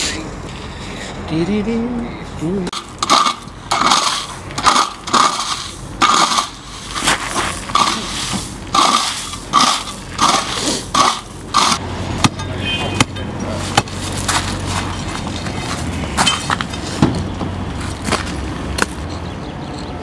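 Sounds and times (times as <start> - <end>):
steel scraper scraping gravel: 2.7 - 11.8.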